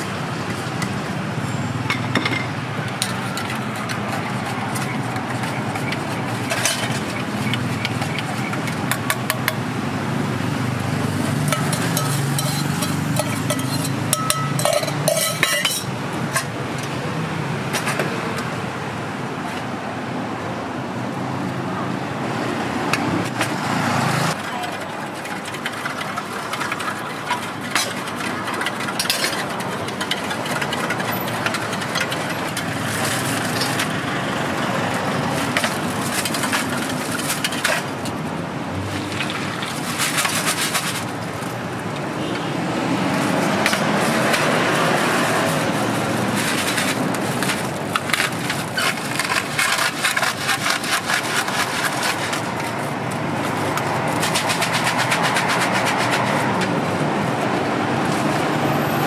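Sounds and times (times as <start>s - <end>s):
street traffic: 0.0s - 59.0s
metal cups and spoons clinking: 1.9s - 9.6s, 11.2s - 16.6s, 24.3s - 34.0s, 35.3s - 38.1s.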